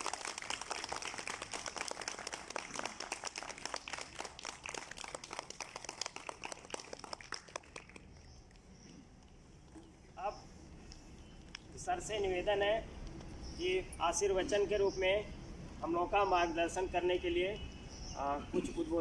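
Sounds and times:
group applauding: 0.0s - 8.3s.

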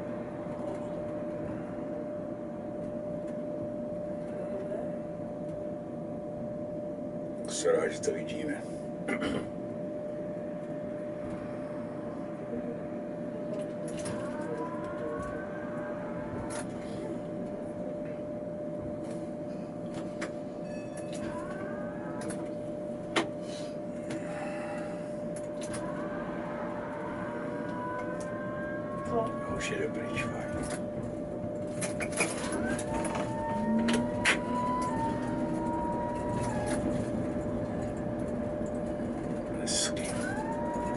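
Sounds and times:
tram whining hum: 0.0s - 40.9s
electric traction whines: 9.7s - 40.9s.

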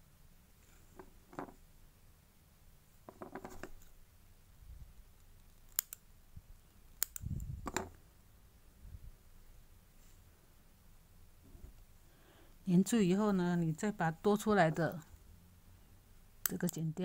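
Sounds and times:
metal scissors clicking: 5.7s - 6.0s.

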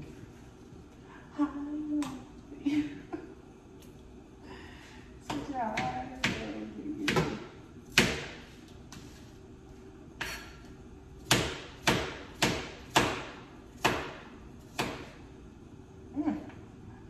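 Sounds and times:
knife chopping on cutting board: 5.3s - 9.1s, 11.2s - 15.2s.

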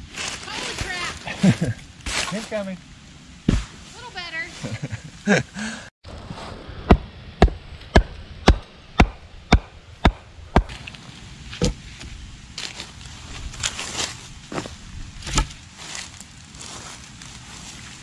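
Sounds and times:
footsteps in dry leaves: 0.0s - 2.7s, 10.6s - 18.0s
wooden mallet striking stake: 6.9s - 10.9s, 15.2s - 15.6s.

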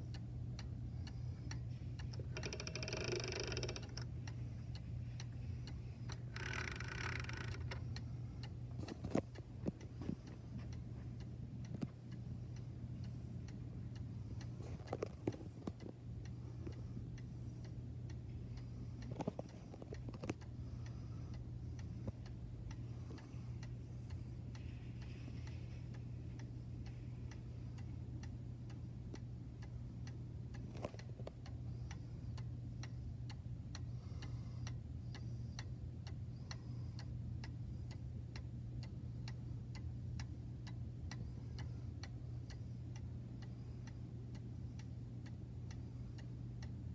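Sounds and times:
cuckoo clock ticking: 1.5s - 8.6s.

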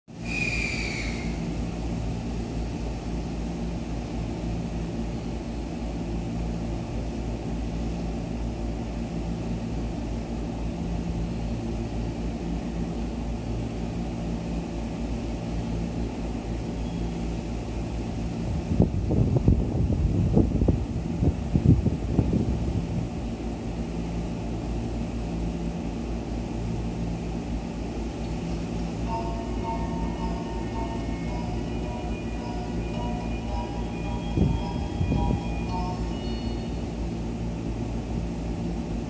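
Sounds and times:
train equipment humming: 0.1s - 39.0s
wind buffeting microphone: 18.4s - 23.3s
brief high tone: 29.0s - 36.8s.

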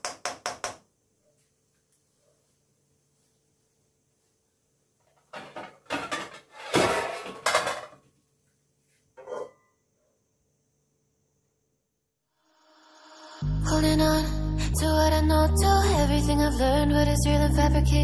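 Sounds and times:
cookware clattering: 5.2s - 8.0s, 9.2s - 9.7s.

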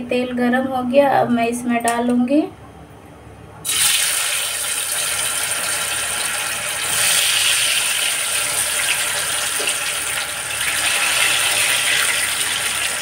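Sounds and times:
potato sticks sizzling in oil: 3.7s - 13.0s.

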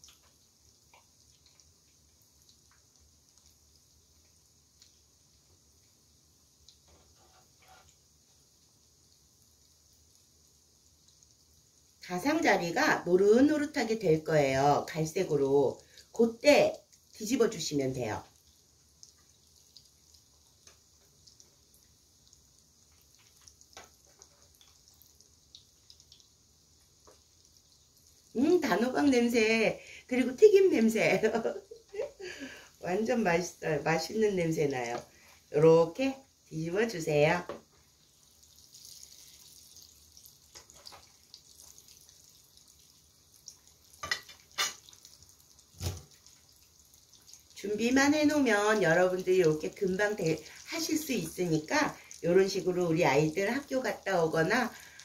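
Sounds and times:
oil popping and crackling: 0.0s - 6.0s, 15.4s - 29.5s, 37.3s - 55.0s
croquettes deep-frying in oil: 0.0s - 55.0s.

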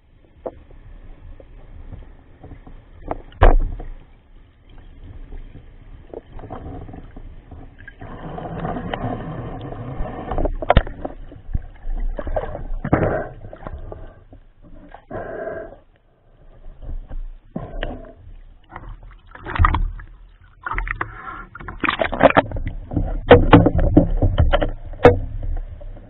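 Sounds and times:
sharp underwater knocks: 3.1s - 4.0s, 10.5s - 13.8s, 18.8s - 25.6s.

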